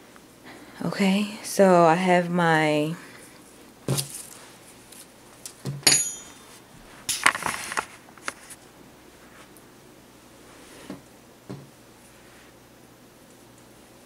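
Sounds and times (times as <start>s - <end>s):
metal hook clinking on table: 5.8s - 6.5s
knocks on wooden table: 11.5s - 11.7s.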